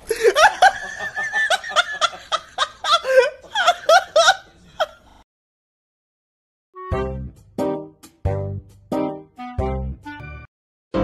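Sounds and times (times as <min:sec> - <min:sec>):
person giggling: 0:00.0 - 0:05.1.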